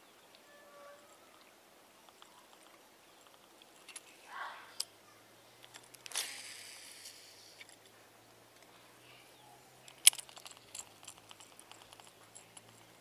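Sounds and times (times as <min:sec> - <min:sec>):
fishing reel clicking and whirring: 0:06.0 - 0:07.7, 0:09.9 - 0:12.8.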